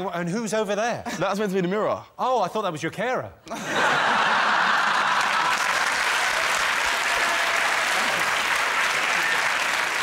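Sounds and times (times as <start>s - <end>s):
audience laughing: 3.5s - 6.0s
audience applauding: 4.0s - 10.0s.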